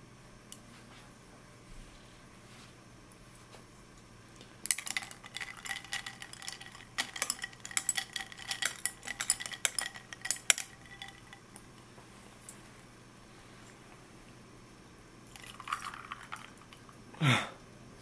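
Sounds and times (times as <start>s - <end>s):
spoon clinking ice in glass: 4.7s - 11.5s, 15.3s - 16.5s.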